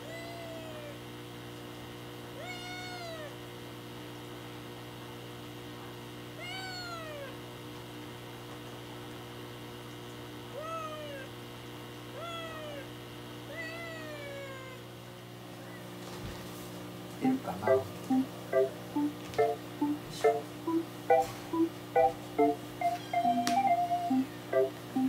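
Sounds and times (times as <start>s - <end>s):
kitten meowing: 0.0s - 1.0s, 2.4s - 3.3s, 6.4s - 7.3s, 10.6s - 11.3s, 12.2s - 12.9s, 13.5s - 14.8s
steady low hum: 16.8s - 25.0s.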